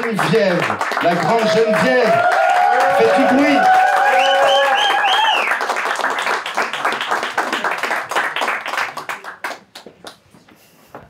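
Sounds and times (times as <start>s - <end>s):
audience applauding: 0.0s - 10.2s
audience whooping: 1.1s - 5.7s.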